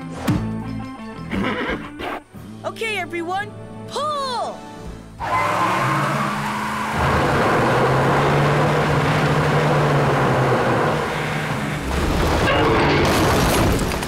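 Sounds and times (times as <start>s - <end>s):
wheels spinning in dirt: 5.2s - 14.0s.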